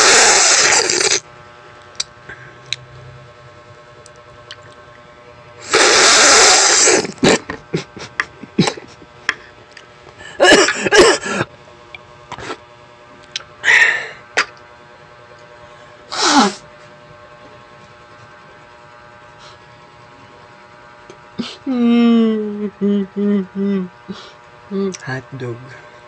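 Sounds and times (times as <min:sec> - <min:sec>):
mouth clicks: 0:00.0 - 0:01.2.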